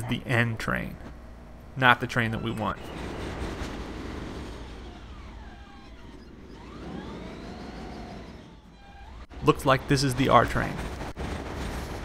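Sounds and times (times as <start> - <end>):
subway train rumble: 0.0 - 12.0
electric motors whining: 2.2 - 10.1.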